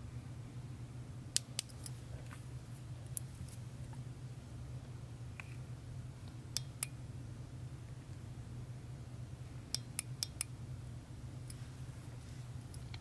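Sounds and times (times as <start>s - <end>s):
steady low hum: 0.0s - 13.0s
laser pointer metallic clicks: 9.7s - 10.5s.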